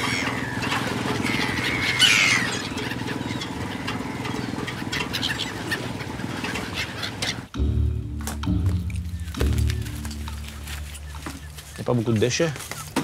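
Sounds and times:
boat motor running: 0.0 - 13.0
gulls calling: 0.0 - 13.0
low music: 7.5 - 12.2.

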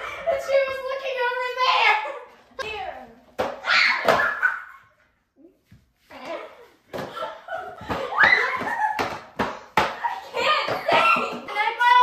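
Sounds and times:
girls laughing and shrieking: 0.0 - 2.5, 3.6 - 5.1, 7.1 - 12.0.

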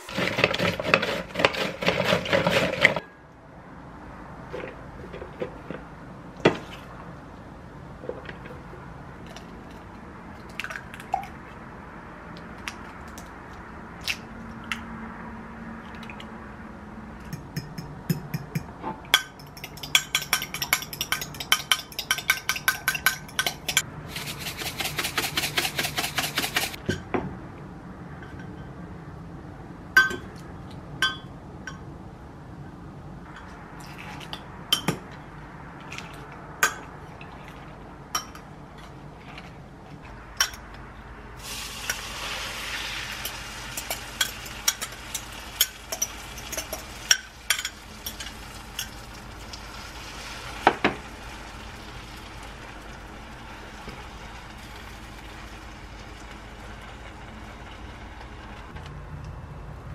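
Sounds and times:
spoon tapping while stirring: 17.3 - 23.8
fork beating eggs in glass: 19.4 - 26.8
frying pan sizzling: 41.4 - 58.8.

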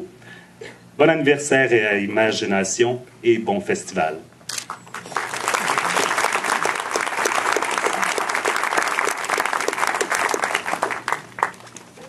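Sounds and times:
audience applauding: 4.9 - 11.8.

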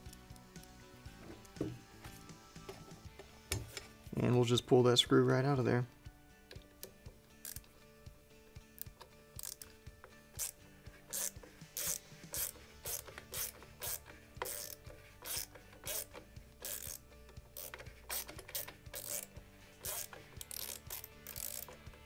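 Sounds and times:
screwdriver rasping clicks: 6.5 - 7.7, 8.8 - 22.0.

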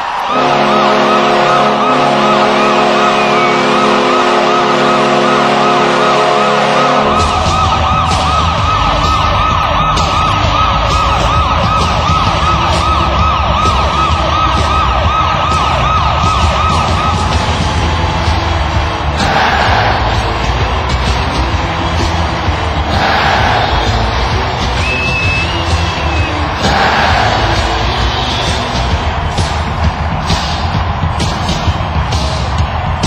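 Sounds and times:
multi-tone horn blast: 0.2 - 9.2
warbling siren: 0.2 - 18.2
music with heavy bass beat: 7.1 - 33.0.

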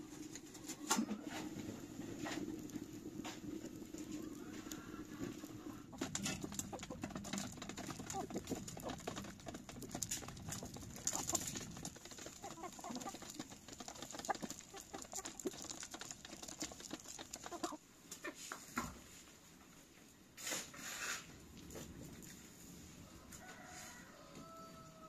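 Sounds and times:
chickens clucking: 0.0 - 18.9
pecking clicks on gravel and metal: 0.2 - 18.3.

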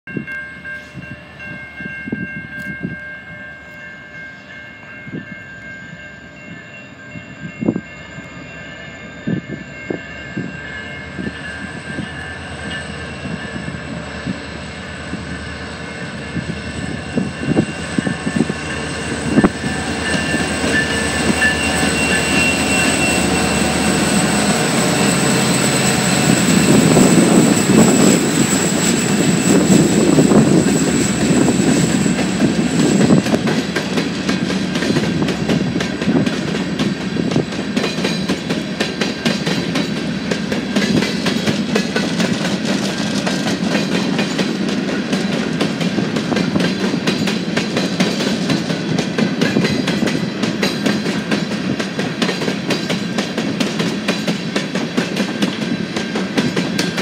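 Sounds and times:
diesel locomotives passing: 0.1 - 57.0
high whine: 7.5 - 37.7.

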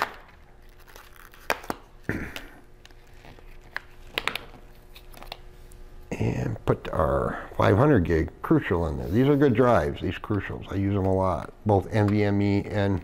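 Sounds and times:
plastic crinkling: 0.0 - 2.1.

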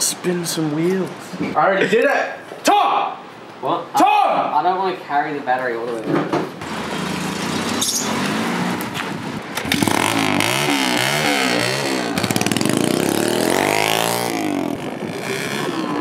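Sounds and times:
dirt bike engine revving: 6.6 - 16.0.

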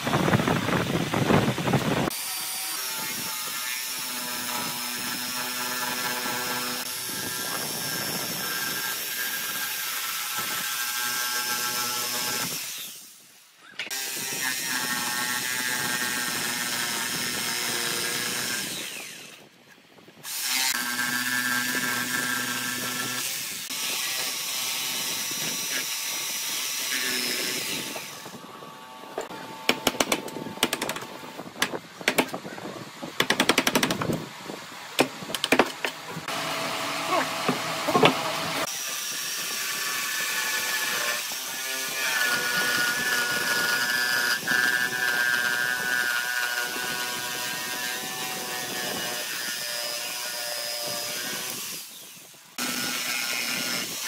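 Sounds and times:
jigsaw sawing through wood: 2.0 - 13.2, 13.9 - 19.5, 20.3 - 28.6, 35.6 - 54.0
chisel knocking: 31.6 - 32.4, 35.0 - 36.0.

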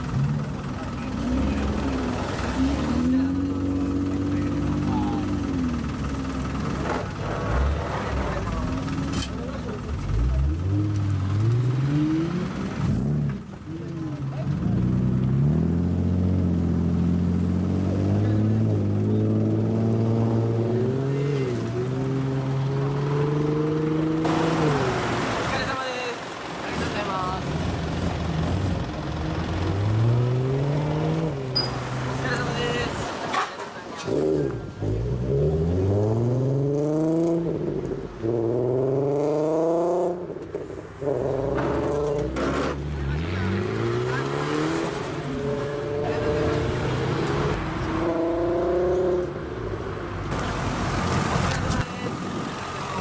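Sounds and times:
second car engine running: 0.0 - 25.4
car engine revving: 0.0 - 33.3, 34.0 - 53.0.

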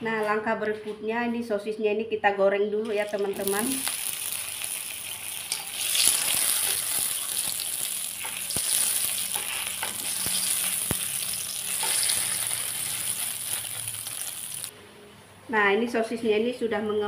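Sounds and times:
sausages sizzling in oil: 2.9 - 14.7.

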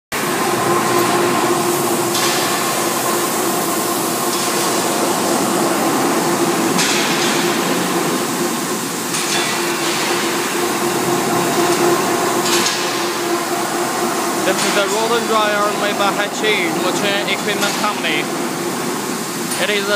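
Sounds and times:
rotary drum dryer running: 0.1 - 19.9.

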